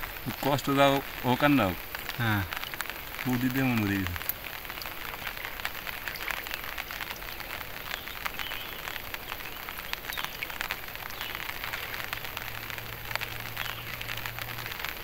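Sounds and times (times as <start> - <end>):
rain pattering on water: 0.0 - 15.0.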